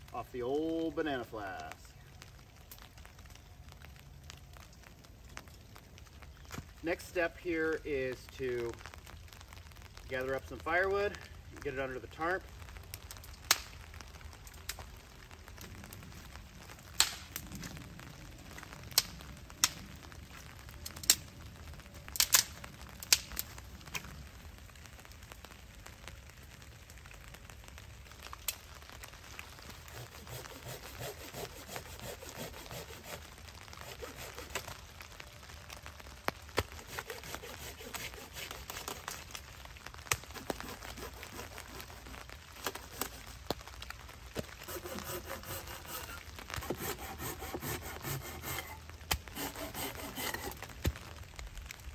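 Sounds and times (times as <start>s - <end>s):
dry wood cracking and snapping: 1.6s - 6.9s, 12.4s - 51.9s
folding saw cutting wood: 29.9s - 33.2s, 33.8s - 34.7s, 36.8s - 39.1s, 44.6s - 50.7s.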